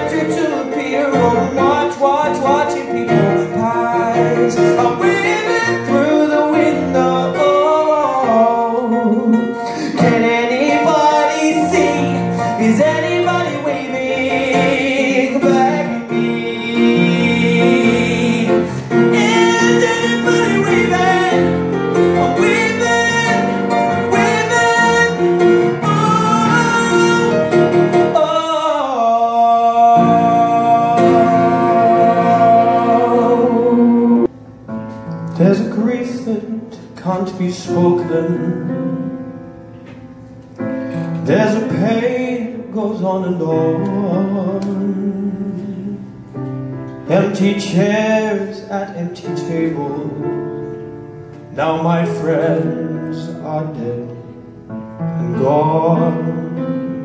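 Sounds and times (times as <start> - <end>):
man singing into a microphone: 0.0 - 34.3, 35.3 - 39.2, 40.9 - 46.2, 47.0 - 57.0
instrumental accompaniment: 0.0 - 57.0.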